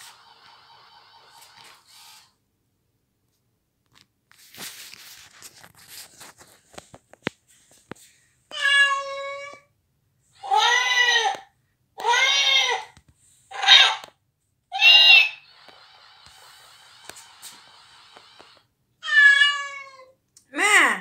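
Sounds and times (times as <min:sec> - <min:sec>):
soft clicks and scuffs: 0:03.2 - 0:08.6, 0:12.9 - 0:13.4, 0:15.5 - 0:18.6
toy electronic cry: 0:14.8 - 0:15.5.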